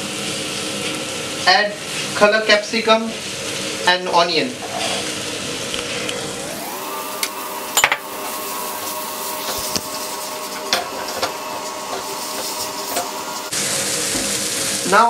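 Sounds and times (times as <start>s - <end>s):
vegetables sizzling in frying pan: 0.0s - 15.0s.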